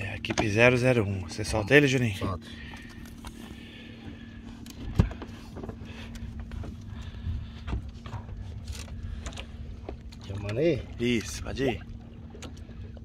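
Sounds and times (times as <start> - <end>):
steady low hum: 0.0 - 13.0
thump on a boat: 4.8 - 5.8, 7.6 - 8.5.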